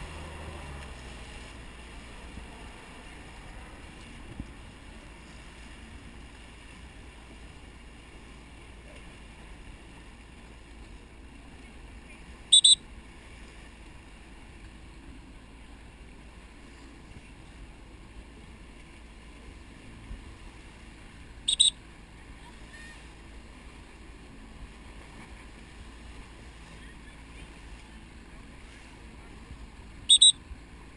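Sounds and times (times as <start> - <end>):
water noise: 0.0 - 30.9
wind: 0.0 - 30.9
whistle blasts: 12.5 - 12.8, 21.5 - 21.8, 30.1 - 30.4.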